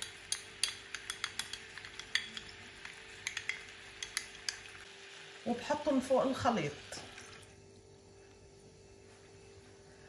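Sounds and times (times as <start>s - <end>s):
spoon clinking against glass: 0.0s - 2.6s, 3.2s - 4.6s
faint steady hum: 0.0s - 10.0s.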